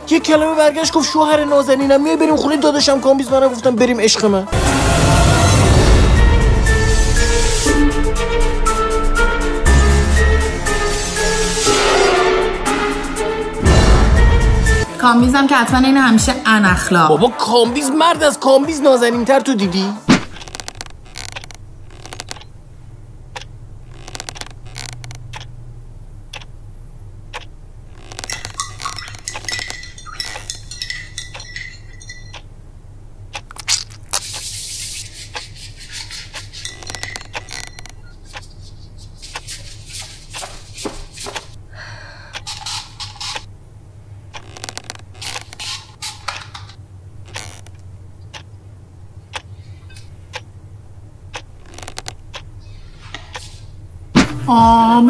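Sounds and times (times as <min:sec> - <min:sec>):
low steady hum: 0:20.1 - 0:55.0
clicks and clinks of handling: 0:28.2 - 0:32.5
rubber gloves rustling: 0:33.3 - 0:41.6.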